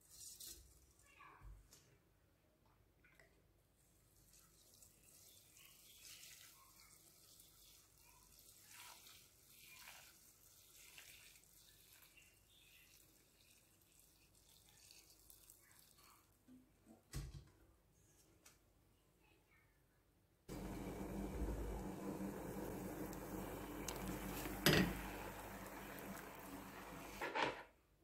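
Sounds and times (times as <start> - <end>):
water trickling into saucepan: 4.2 - 16.3, 20.5 - 27.2.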